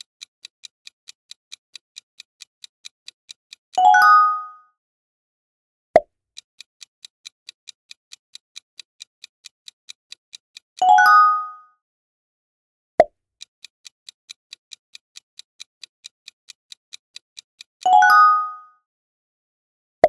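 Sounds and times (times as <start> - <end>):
bright multi-note chime: 3.8 - 4.6, 10.9 - 11.6, 17.9 - 18.7
countdown timer ticking: 14.3 - 18.7.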